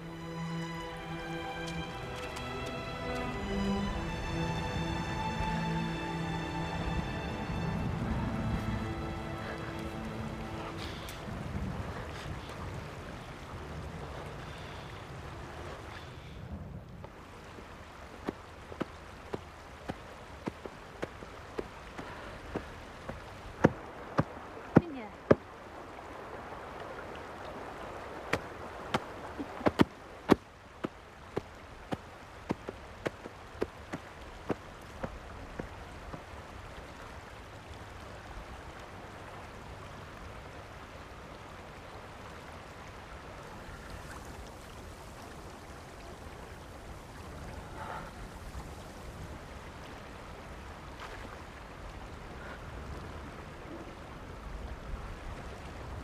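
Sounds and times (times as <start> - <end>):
shallow stream rushing: 0.0 - 56.0
wooden paddle beating wet clothes: 28.3 - 35.2.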